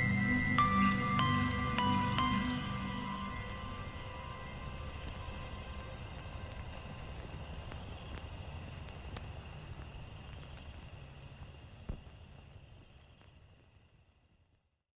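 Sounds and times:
steady high tone: 0:00.0 - 0:06.6
low rumble: 0:00.0 - 0:08.9.

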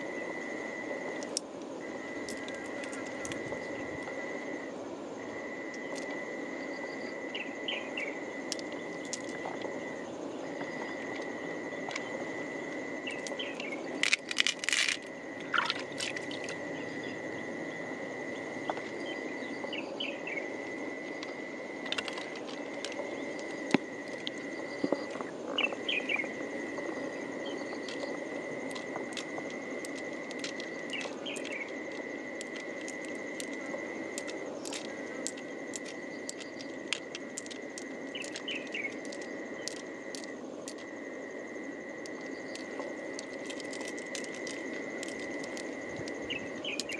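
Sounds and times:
high-pitched insect drone: 0:00.0 - 0:46.9
pearls clicking in a shell: 0:02.2 - 0:04.1, 0:08.4 - 0:09.7, 0:13.1 - 0:16.6, 0:21.1 - 0:25.2, 0:26.8 - 0:41.0, 0:42.0 - 0:46.9.

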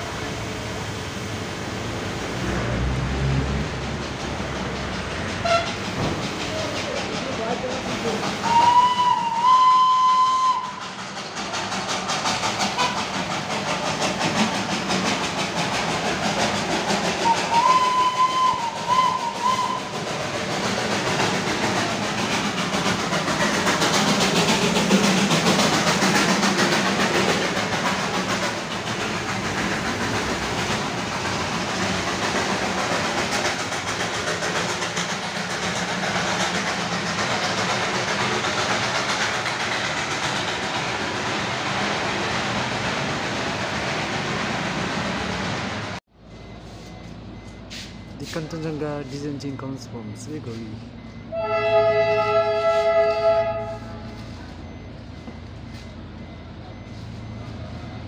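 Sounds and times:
rhythmic steam engine chuffing: 0:00.0 - 0:58.0
train wheels rumbling on rails: 0:00.0 - 0:58.0
steam locomotive whistle blasts: 0:05.4 - 0:05.8, 0:08.4 - 0:10.8, 0:17.2 - 0:20.1, 0:51.3 - 0:54.3.

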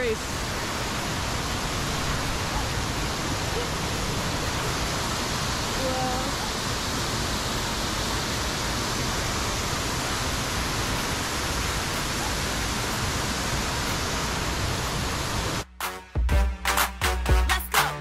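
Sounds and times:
waterfall roaring: 0:00.0 - 0:15.7.

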